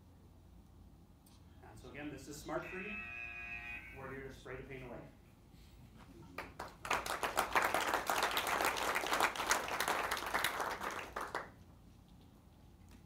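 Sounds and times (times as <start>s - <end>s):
audience applauding: 6.4s - 11.6s.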